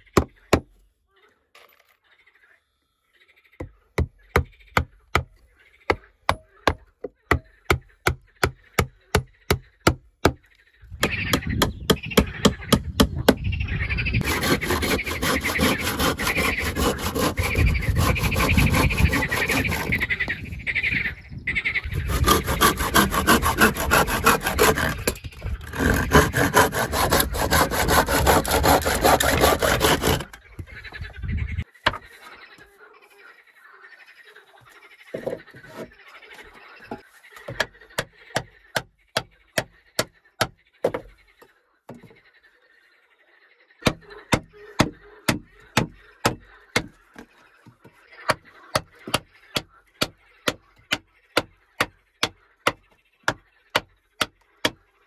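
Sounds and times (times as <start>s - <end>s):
hand saw cutting a board: 14.2s - 20.0s, 22.0s - 30.4s.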